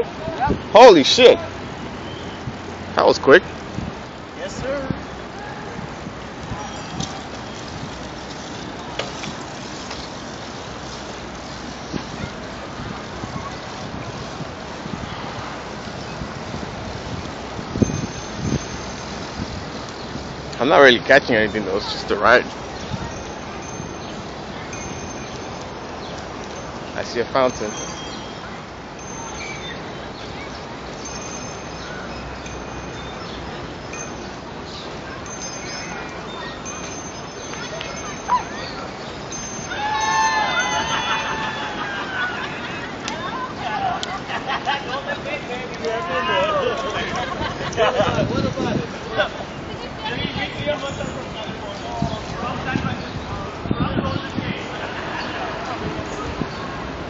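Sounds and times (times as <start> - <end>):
wind rushing on microphone: 0.0 - 44.4, 45.2 - 57.0
bicycle tyres on asphalt: 0.0 - 57.0
high tinkling tones: 6.6 - 14.4, 15.5 - 41.9.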